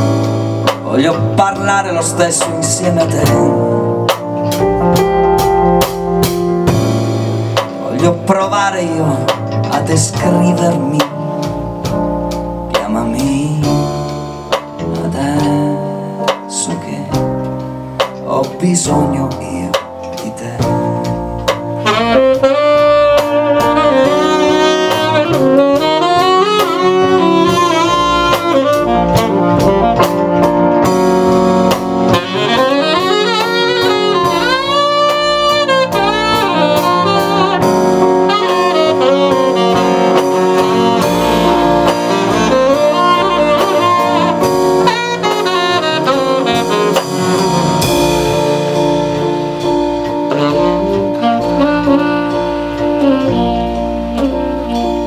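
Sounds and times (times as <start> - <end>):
drum kit: 0.0 - 55.0
keyboard: 0.0 - 55.0
upright bass: 0.0 - 55.0
tenor saxophone melody: 21.2 - 55.0.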